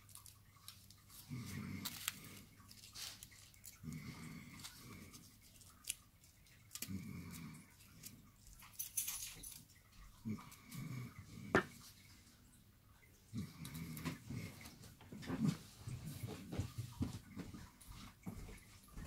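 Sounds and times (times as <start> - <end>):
aluminium foil crinkling: 0.0 - 9.7.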